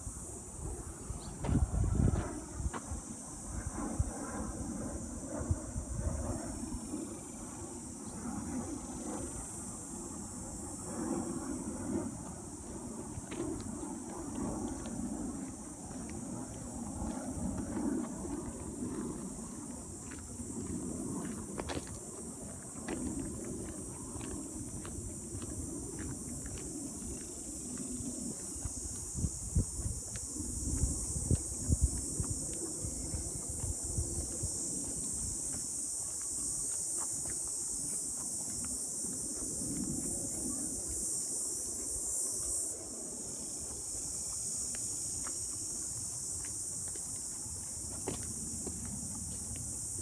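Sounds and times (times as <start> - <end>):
insect chorus buzzing: 0.0 - 50.0
footsteps crunching on dirt: 1.2 - 3.1, 12.6 - 42.7, 43.4 - 50.0.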